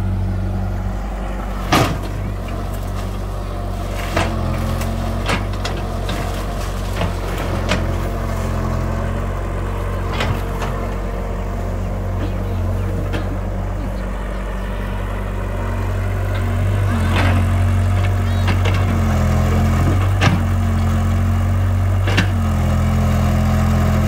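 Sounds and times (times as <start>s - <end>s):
excavator diesel engine running: 0.0s - 24.0s.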